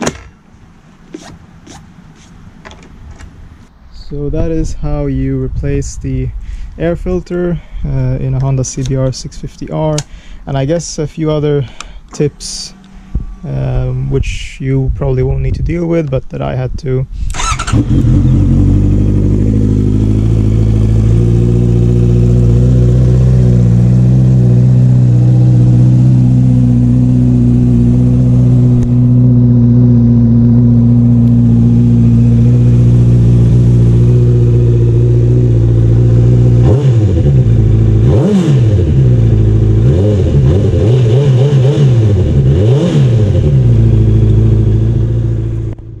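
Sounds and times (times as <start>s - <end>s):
motorcycle engine idling and revving: 17.3s - 46.0s.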